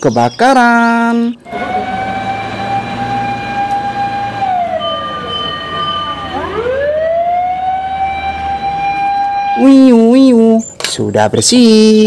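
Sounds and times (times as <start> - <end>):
fire engine siren wailing: 0.8 - 10.4.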